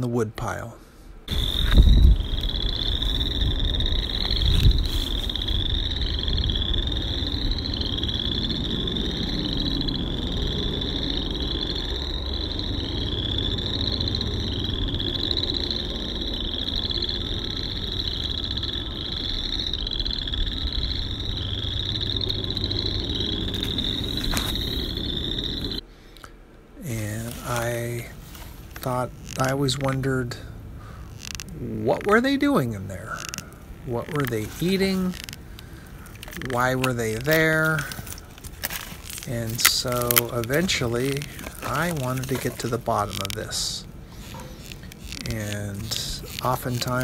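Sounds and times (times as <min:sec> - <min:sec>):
frogs trilling: 0:01.2 - 0:47.0.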